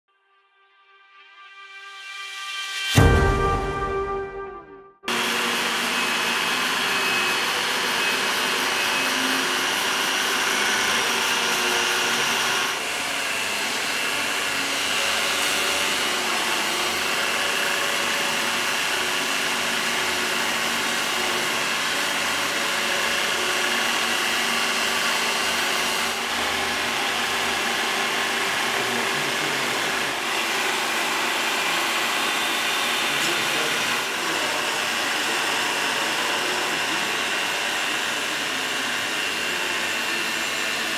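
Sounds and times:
electric grinder motor whine: 5.1s - 40.9s.

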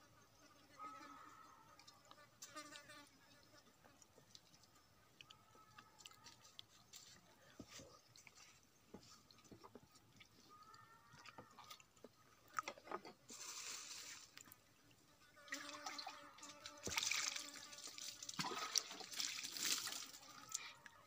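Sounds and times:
water splashing and trickling: 8.0s - 21.0s.

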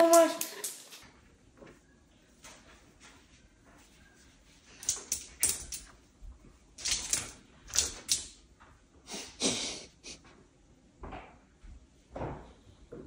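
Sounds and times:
dog claws clicking on wooden floor: 0.0s - 1.0s, 4.7s - 6.0s, 6.8s - 8.4s.

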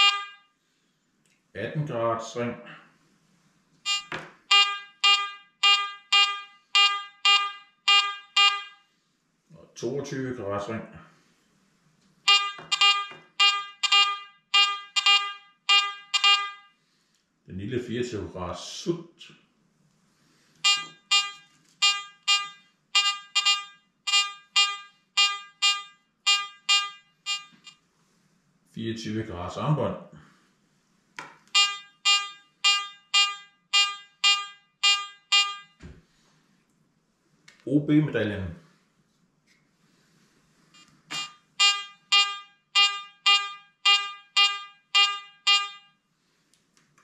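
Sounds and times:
metal detector beeping: 0.0s - 0.4s, 3.9s - 8.8s, 12.3s - 16.7s, 20.6s - 27.8s, 31.5s - 35.8s, 40.8s - 46.0s.

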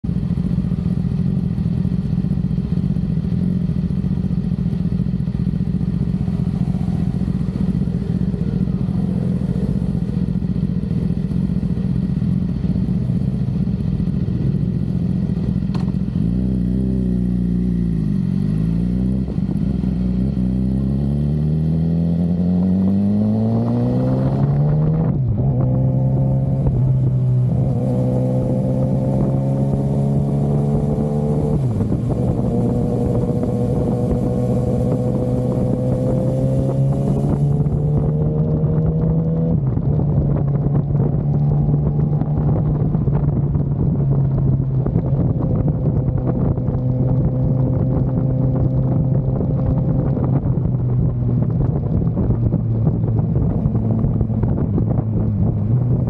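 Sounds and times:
motorcycle engine idling and accelerating: 0.0s - 56.0s.

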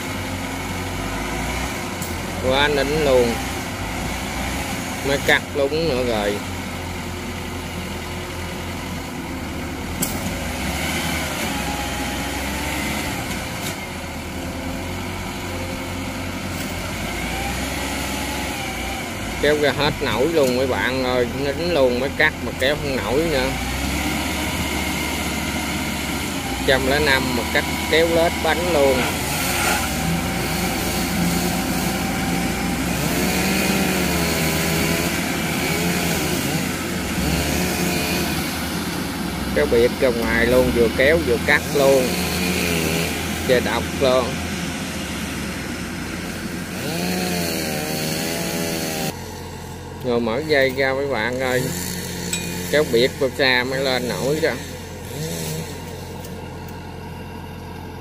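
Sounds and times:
harvester engine running: 0.0s - 58.0s.

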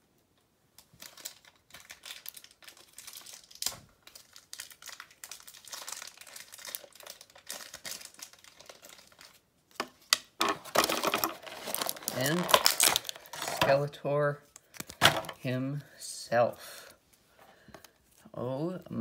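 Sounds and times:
plastic packaging crinkling: 0.8s - 13.9s
sharp plastic crack: 3.5s - 4.2s, 9.8s - 13.8s, 14.7s - 15.4s.

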